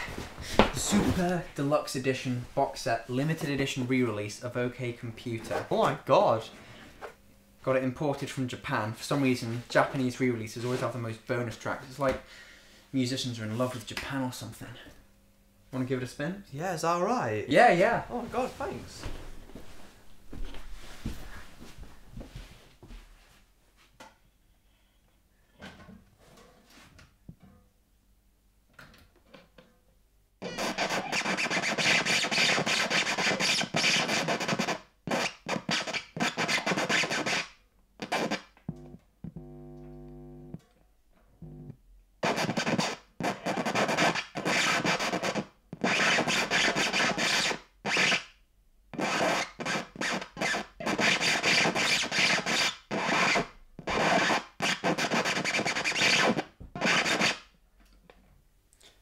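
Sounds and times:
vinyl record scratching: 17.6s - 19.1s, 30.4s - 40.6s, 41.4s - 48.2s, 49.0s - 57.4s
buzzing pitched tone: 38.0s - 40.6s, 41.4s - 41.8s.

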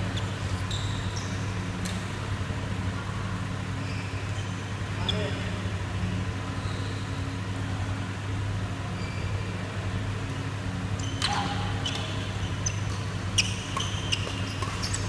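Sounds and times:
shoes squeaking on court: 0.0s - 2.0s, 3.8s - 5.5s, 6.5s - 7.3s, 8.9s - 9.5s, 10.8s - 15.0s.

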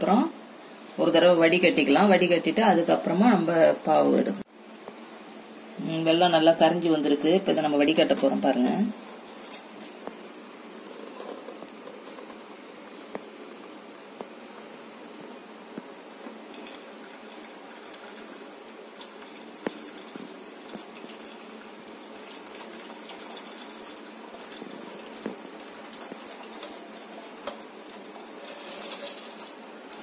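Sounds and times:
syrup trickling and splashing: 16.5s - 30.0s.

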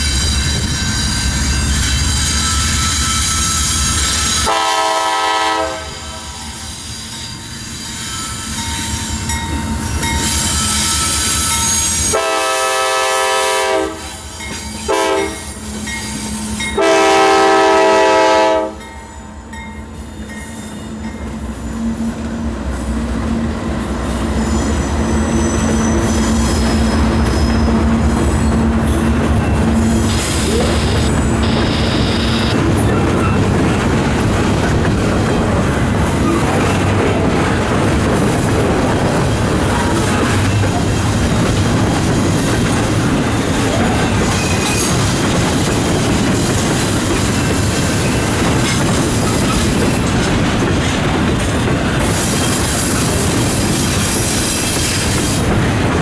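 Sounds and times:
train wheel squeal: 0.0s - 5.0s, 6.4s - 12.4s, 14.0s - 16.9s, 18.9s - 23.0s, 23.7s - 33.5s, 36.1s - 37.0s, 41.9s - 50.4s, 51.4s - 55.4s
train rumble: 0.0s - 56.0s
locomotive air horn blasts: 4.4s - 6.6s, 12.1s - 14.2s, 14.9s - 15.4s, 16.8s - 18.8s, 30.1s - 32.6s.

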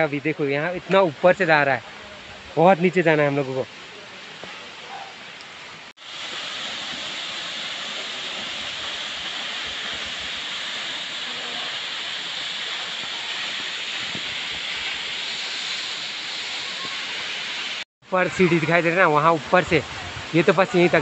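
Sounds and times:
waterfall rushing: 6.0s - 21.0s.

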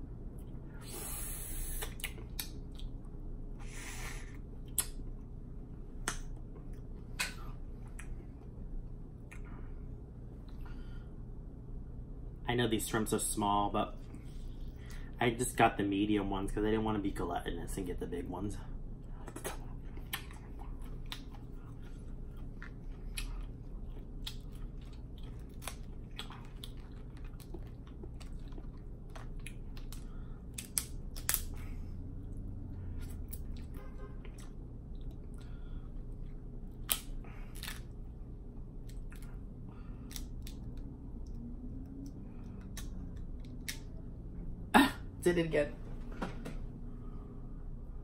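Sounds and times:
close chewing: 19.2s - 31.7s.

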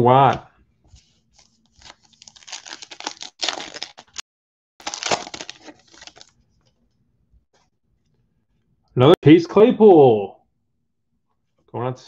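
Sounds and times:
foil wrapper crinkling and tearing: 1.7s - 4.2s, 4.8s - 6.4s.

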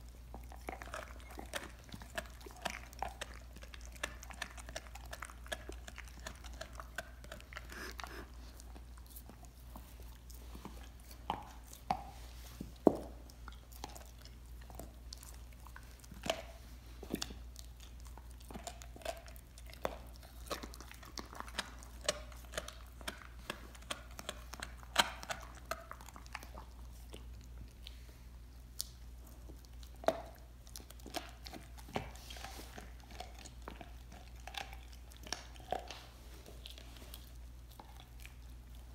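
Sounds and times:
dog chewing a bone: 0.0s - 38.9s
teeth cracking on bone: 0.2s - 8.1s, 17.1s - 27.6s.

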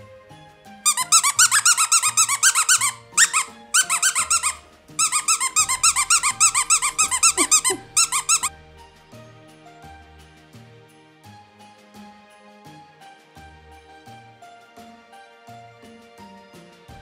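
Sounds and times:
soft background music: 0.0s - 17.0s
squeaky dog toy squeaking: 0.8s - 8.5s.

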